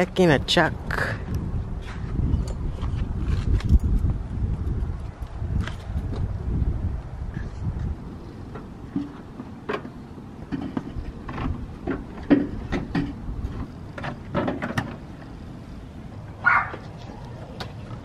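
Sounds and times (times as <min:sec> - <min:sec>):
hard parts clicking and knocking: 0:08.5 - 0:15.1.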